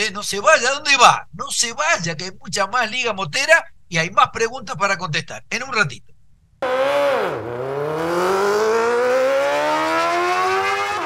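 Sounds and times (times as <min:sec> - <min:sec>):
racing engine accelerating: 0:06.6 - 0:11.0.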